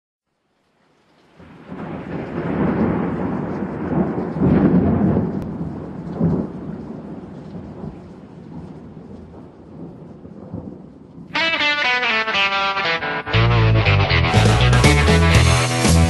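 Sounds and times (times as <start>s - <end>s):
rain: 0.2s - 13.0s
rolling thunder: 1.4s - 11.3s
thunder crack: 1.7s - 7.2s.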